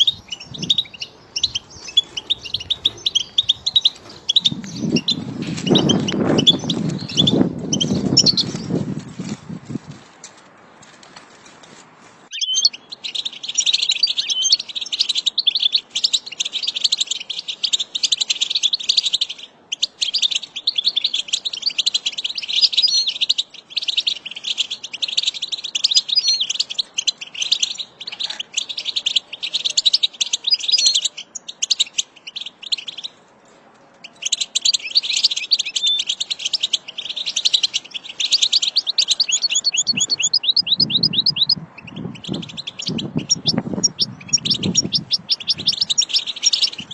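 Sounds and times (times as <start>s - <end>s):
goldfinch singing: 0.0s - 8.8s, 12.3s - 33.2s, 34.0s - 46.9s.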